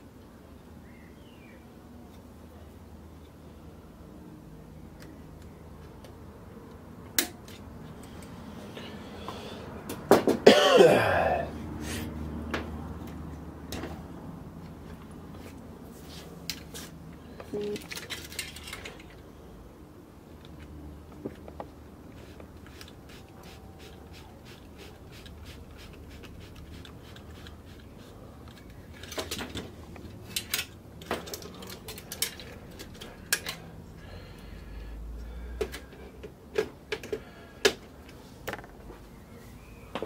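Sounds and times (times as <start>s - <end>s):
metal and plastic parts clicking: 17.6s - 19.2s, 28.4s - 33.6s.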